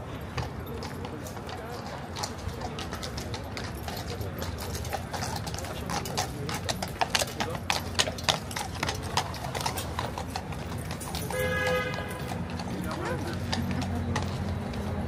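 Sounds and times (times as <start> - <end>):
hooves clip-clopping on hard ground: 0.0 - 15.0.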